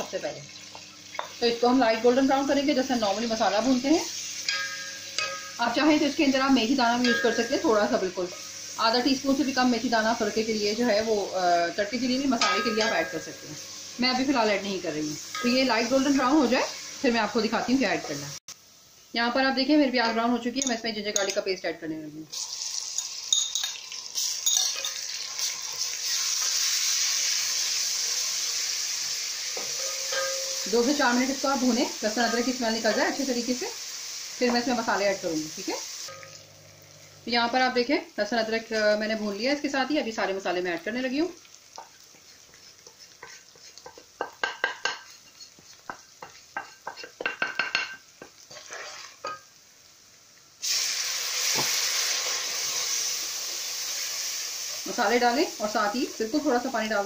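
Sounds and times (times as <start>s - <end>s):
onions sizzling in hot oil: 0.0s - 57.0s
spoon clinking on steel pot: 4.4s - 5.7s, 6.8s - 7.8s, 12.3s - 13.6s, 15.3s - 15.7s, 20.6s - 21.5s, 22.9s - 25.0s, 29.6s - 31.0s, 36.1s - 36.4s.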